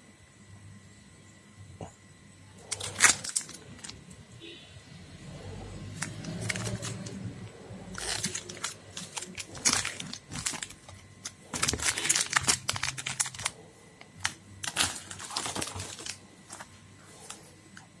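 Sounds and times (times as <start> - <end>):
foil wrappers crinkling: 2.6 - 4.1, 6.0 - 17.4.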